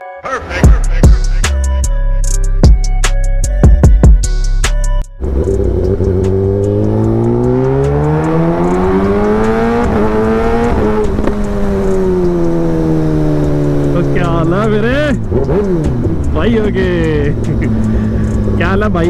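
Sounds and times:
music: 0.0s - 12.6s
motorcycle engine accelerating: 5.2s - 19.0s.

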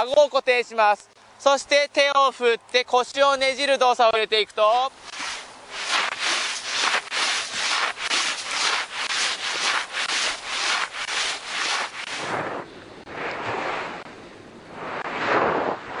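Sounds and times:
snowboard scraping on packed snow: 5.0s - 14.0s.

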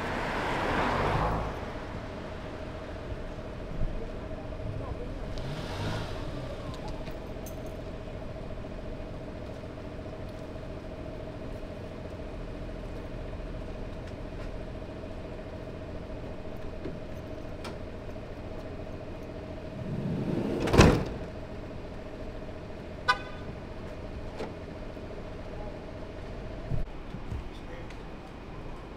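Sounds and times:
engine hum: 0.0s - 28.9s
sliding van door rolling: 19.7s - 21.4s
door slamming shut: 20.4s - 21.3s.

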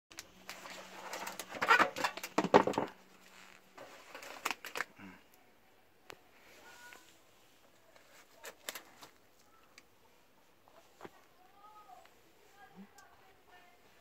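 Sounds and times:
plastic tray crackling and clicking: 4.1s - 4.9s.

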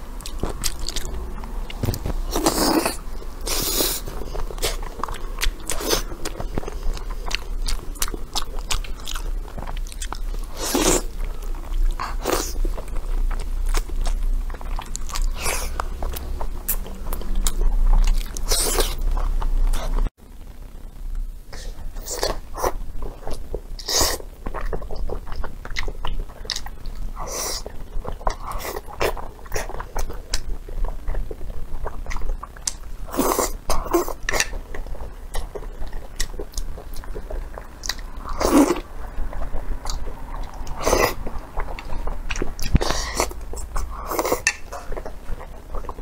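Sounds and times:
person chewing: 0.2s - 20.1s, 22.0s - 46.0s
slurping noodles: 2.3s - 4.9s.

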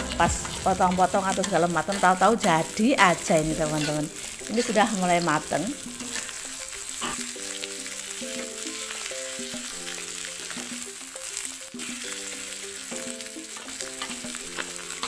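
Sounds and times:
food sizzling in oil: 0.0s - 15.0s
soft background music: 0.0s - 15.0s
metal spatula scraping a wok: 5.7s - 15.0s.

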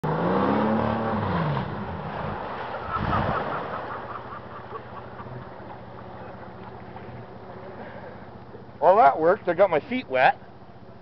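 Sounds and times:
truck engine revving: 0.0s - 7.2s
loud water splash: 0.6s - 4.1s.

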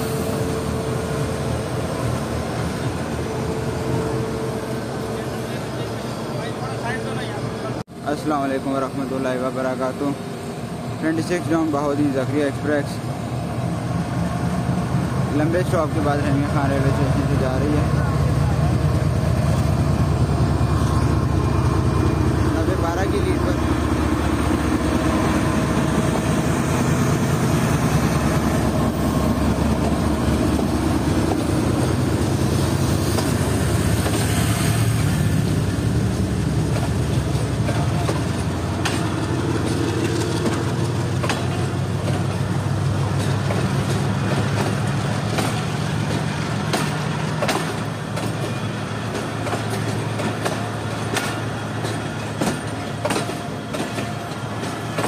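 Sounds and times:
diesel locomotive engine running: 0.0s - 55.0s
coach wheels clicking over rail joints: 15.4s - 55.0s.

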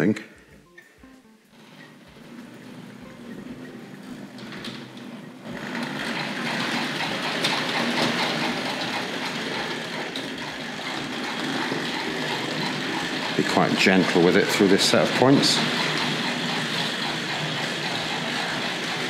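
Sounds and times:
wheels clicking on track: 1.6s - 19.0s
model train electric motor: 3.6s - 19.0s
rhythmic steam chuffing: 5.5s - 19.0s.

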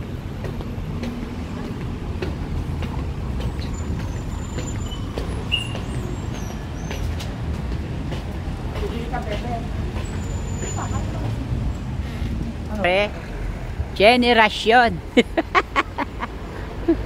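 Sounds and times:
footsteps on pavement: 0.0s - 13.0s
street traffic rumble: 0.0s - 17.0s.

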